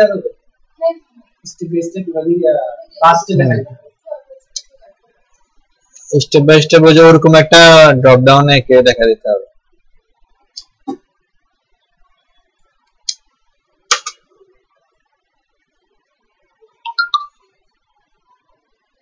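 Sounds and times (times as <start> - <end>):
mouse and keyboard clicks: 13.9 - 14.2.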